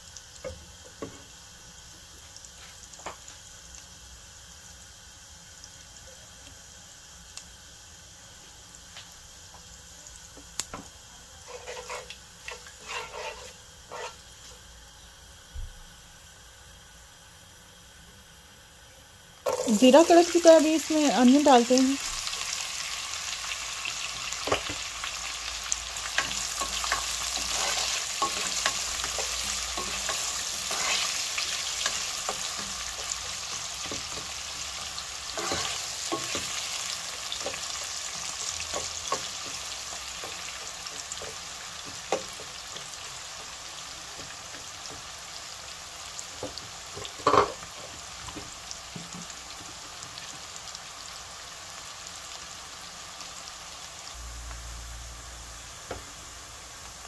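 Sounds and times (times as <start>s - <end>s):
onions sizzling in oil: 0.0s - 57.0s
wooden spoon scraping pan: 11.4s - 14.2s, 35.4s - 36.6s.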